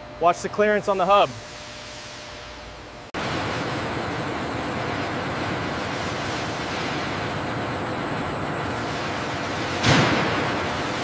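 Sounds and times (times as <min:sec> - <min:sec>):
rushing machinery noise: 0:03.2 - 0:11.0.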